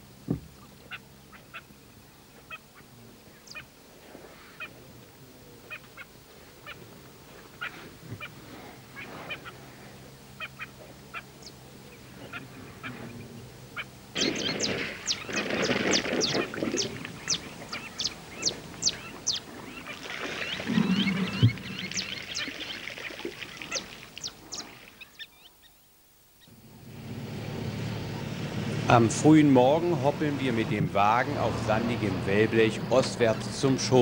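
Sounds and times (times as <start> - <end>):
flock of birds calling: 5.6 - 25.7.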